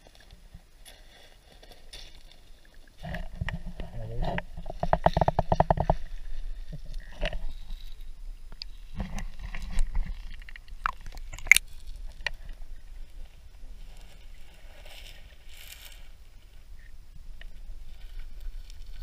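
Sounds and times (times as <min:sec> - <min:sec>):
water sloshing against camera housing: 0:03.0 - 0:12.6
sharp clicks: 0:10.4 - 0:11.6.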